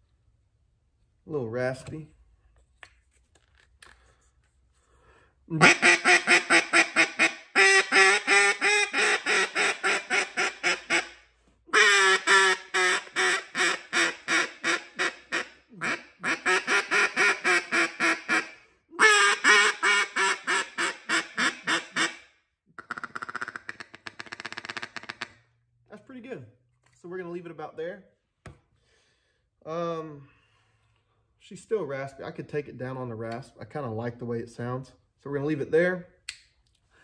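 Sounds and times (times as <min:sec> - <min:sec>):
duck call quacking: 0:05.5 - 0:25.4.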